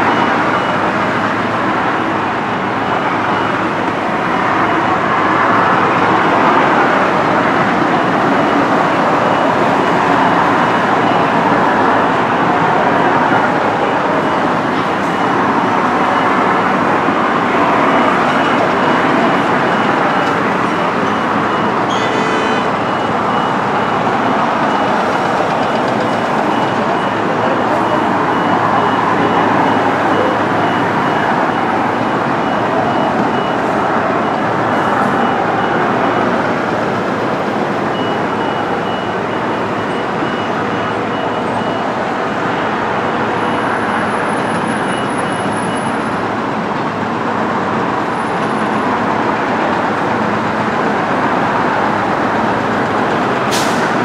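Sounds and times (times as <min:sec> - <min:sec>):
heavy construction machinery: 0:00.0 - 0:54.0
traffic noise: 0:00.0 - 0:54.0
faint high-pitched beeping: 0:12.8 - 0:36.6.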